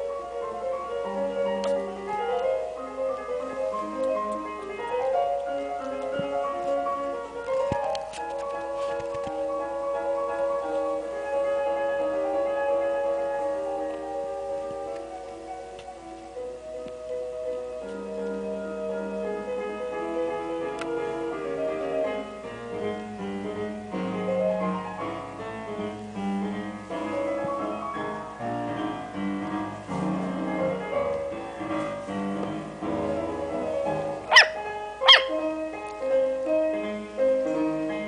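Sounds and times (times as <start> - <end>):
piano music: 0.0 - 38.0
puppy yipping: 34.3 - 35.4.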